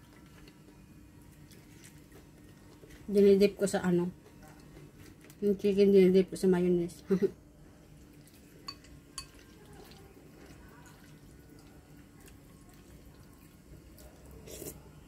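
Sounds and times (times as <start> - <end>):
chopsticks clinking on ceramic dish: 8.7 - 9.4.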